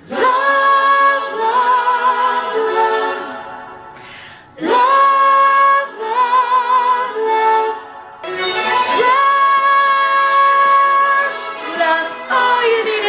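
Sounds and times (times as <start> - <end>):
quick breath: 3.9 - 4.6
woman singing solo: 8.4 - 13.0.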